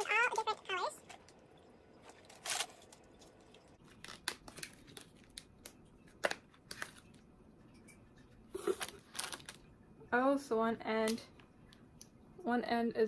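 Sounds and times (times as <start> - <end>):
plastic crackle: 2.0 - 7.2, 8.6 - 9.7
plastic packaging crinkling: 2.1 - 7.2, 8.6 - 9.7.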